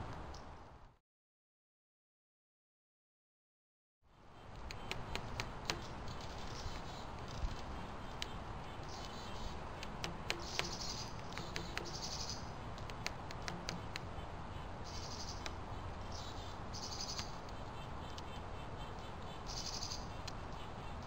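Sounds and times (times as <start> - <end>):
small birds buzzy trills: 4.1 - 21.0
background hiss: 4.2 - 21.0
bird bill tapping feeder: 4.4 - 21.0.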